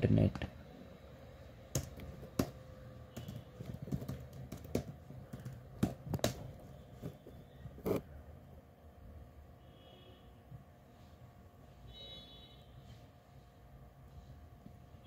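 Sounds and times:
keyboard keys clicking: 0:01.7 - 0:06.6.

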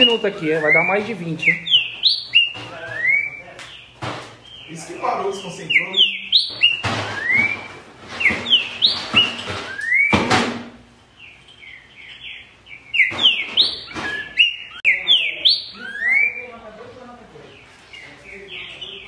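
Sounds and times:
bird singing whistled phrases: 0:00.0 - 0:10.2, 0:11.6 - 0:16.6.

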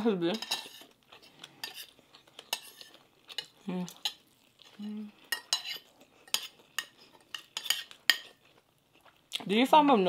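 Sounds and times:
cutlery clinking on plates: 0:00.3 - 0:00.9, 0:05.3 - 0:08.4
person humming: 0:04.8 - 0:05.2.

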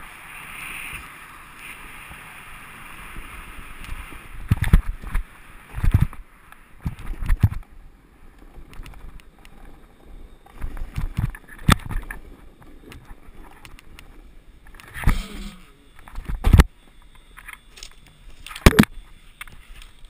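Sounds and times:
snowboard scraping over snow: 0:00.0 - 0:06.8.

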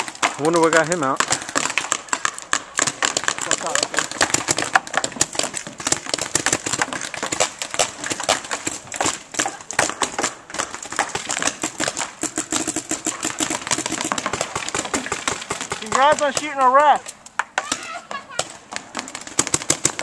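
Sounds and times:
paintball markers firing: 0:00.0 - 0:20.0.

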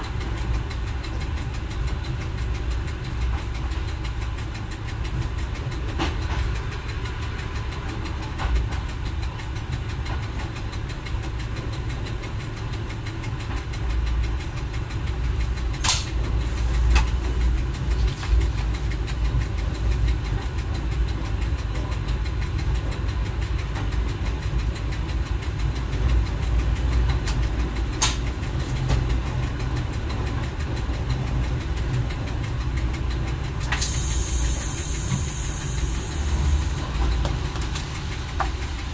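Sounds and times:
railcar diesel engine running: 0:00.0 - 0:38.9
sharp clicks: 0:22.3 - 0:29.1.

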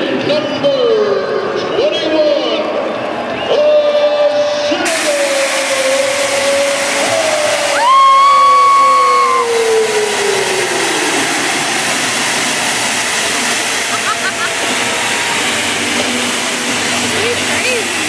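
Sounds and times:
stadium crowd noise: 0:00.0 - 0:18.0
hiss of flame jets: 0:04.9 - 0:18.0
high whoop: 0:07.0 - 0:10.6.

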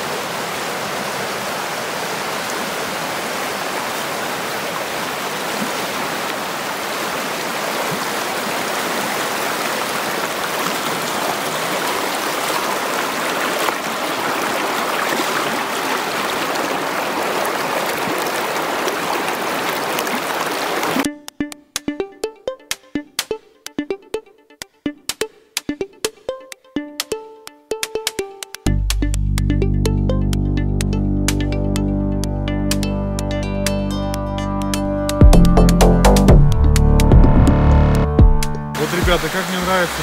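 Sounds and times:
mountain stream running: 0:00.0 - 0:21.1, 0:38.8 - 0:40.0
music with sharp percussive beats: 0:21.2 - 0:31.8, 0:34.6 - 0:39.2.

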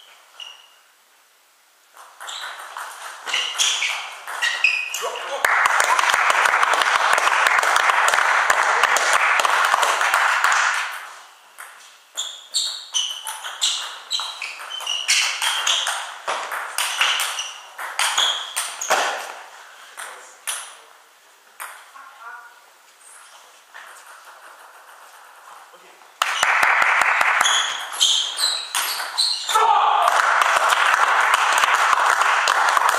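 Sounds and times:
people clapping: 0:05.2 - 0:11.2, 0:26.2 - 0:27.9, 0:30.0 - 0:32.9.

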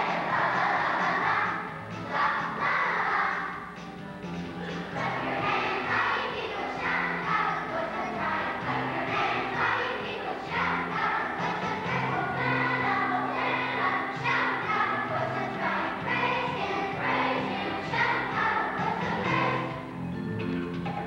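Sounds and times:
children's choir singing: 0:00.0 - 0:03.8, 0:04.6 - 0:19.9.

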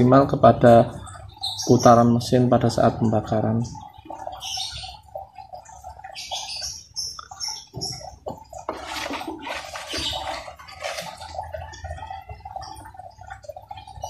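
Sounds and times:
paper and cardboard rustling: 0:08.7 - 0:11.2.

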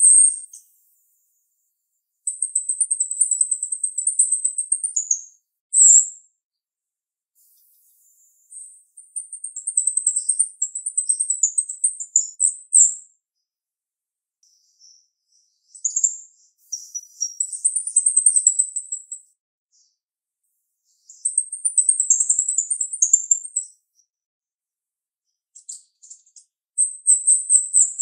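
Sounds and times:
myna chirping: 0:00.0 - 0:01.0, 0:02.3 - 0:06.0, 0:07.4 - 0:12.9, 0:14.5 - 0:19.3, 0:20.9 - 0:23.8, 0:25.6 - 0:28.0
bird chattering song: 0:00.0 - 0:01.1, 0:02.3 - 0:06.1, 0:07.4 - 0:13.0, 0:14.5 - 0:19.2, 0:20.9 - 0:24.1, 0:25.6 - 0:28.0.

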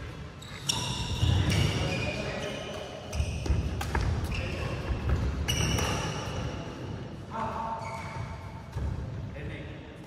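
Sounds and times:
sneakers squeaking on court: 0:00.0 - 0:06.6, 0:07.7 - 0:09.1
racket hitting shuttlecock: 0:02.6 - 0:06.4.

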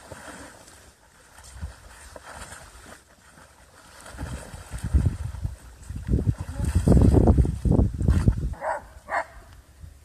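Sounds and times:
water splashing and sloshing: 0:00.0 - 0:09.7
wind rumble on microphone: 0:04.0 - 0:10.0.

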